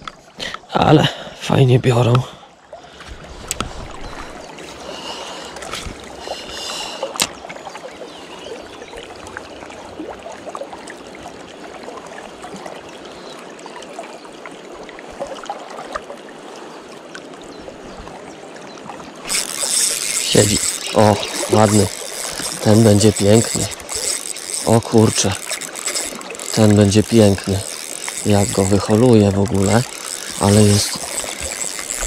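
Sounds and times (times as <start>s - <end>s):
fishing reel ticking: 19.2s - 32.0s.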